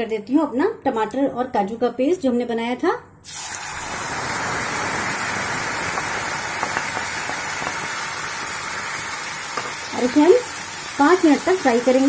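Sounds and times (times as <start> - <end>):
hot oil sizzling: 3.2 - 12.0.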